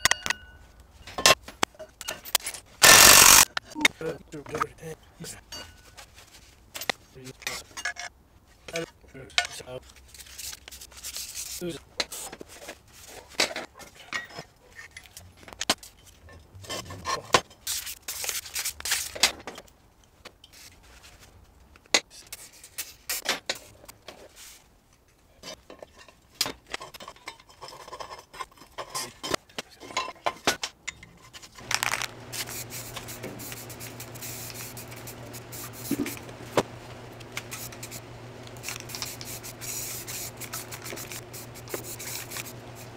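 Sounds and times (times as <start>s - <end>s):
metal parts clinking and scraping: 0.0s - 3.5s, 25.4s - 33.1s
low hum with hiss: 31.6s - 42.9s.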